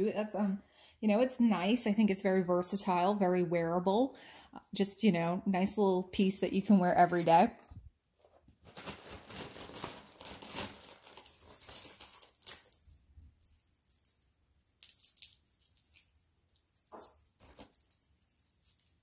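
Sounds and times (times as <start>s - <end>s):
metal jewelry clinking: 11.2s - 19.0s.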